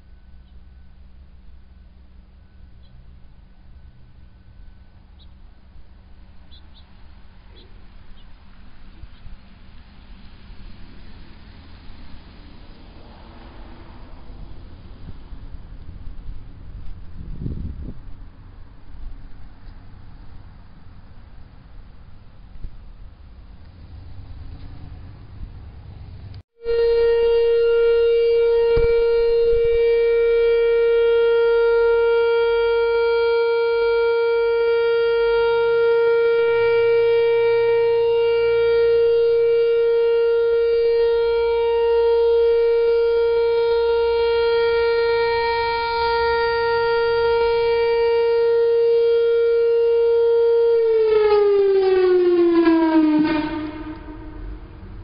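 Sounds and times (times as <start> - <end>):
rotating electronic siren: 26.6 - 55.0.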